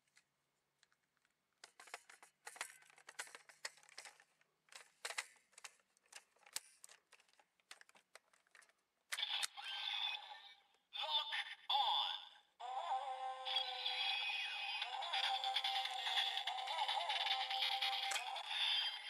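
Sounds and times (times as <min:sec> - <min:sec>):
plastic toy parts clicking: 0:00.8 - 0:09.6, 0:15.2 - 0:19.0
toy electronic music: 0:09.2 - 0:10.5, 0:12.6 - 0:19.0
toy electronic voice: 0:09.2 - 0:19.0.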